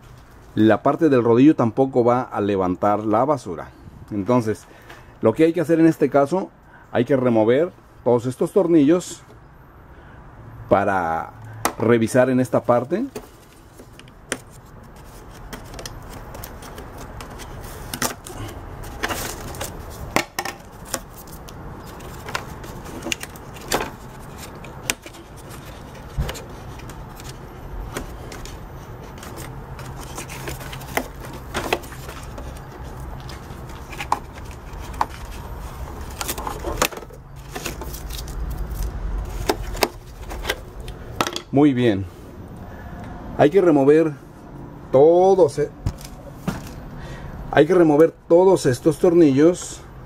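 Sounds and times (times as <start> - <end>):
low steady hum: 9.2 - 50.0
plastic parts knocking and rubbing: 12.9 - 38.4, 39.2 - 41.5.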